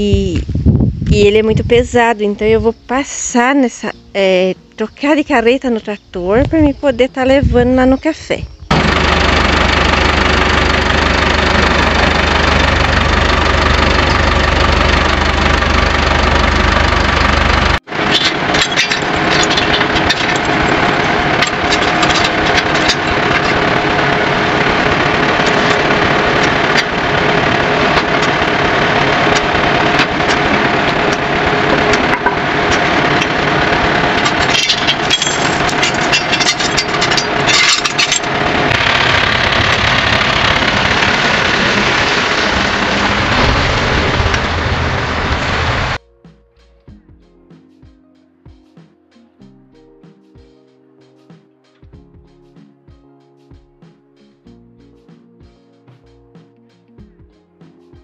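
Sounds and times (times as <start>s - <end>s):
tractor engine idling: 8.6s - 46.0s
metallic clinks of hitch chains: 34.4s - 38.2s.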